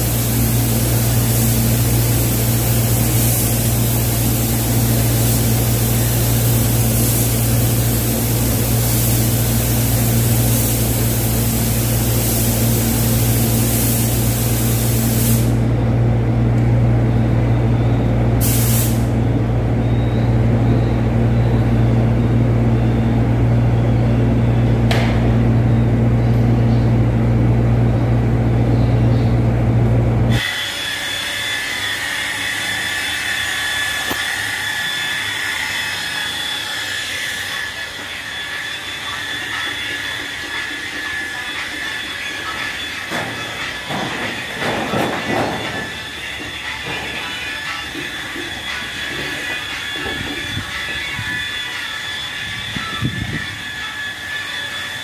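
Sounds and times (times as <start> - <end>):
paint spray gun hissing: 0.0 - 15.7, 18.4 - 19.2
steady low hum: 0.0 - 30.4.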